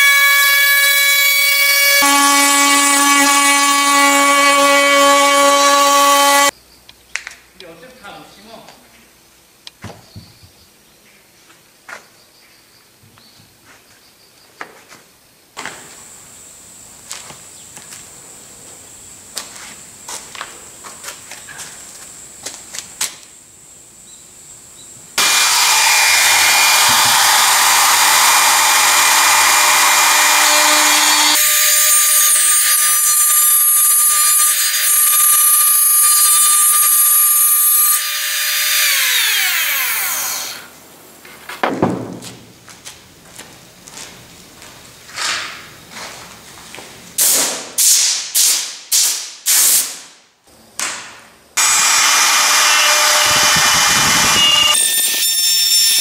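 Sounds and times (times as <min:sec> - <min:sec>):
router cutting wood: 0:00.0 - 0:06.5, 0:25.2 - 0:40.7, 0:51.6 - 0:56.0
router motor whine: 0:00.0 - 0:06.5, 0:25.2 - 0:40.7, 0:51.6 - 0:56.0.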